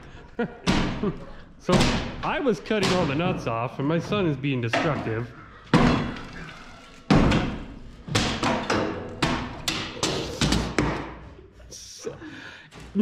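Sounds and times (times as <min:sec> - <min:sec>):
wooden boards being kicked: 0:00.6 - 0:01.1, 0:01.7 - 0:03.5, 0:04.8 - 0:06.4, 0:07.1 - 0:11.2.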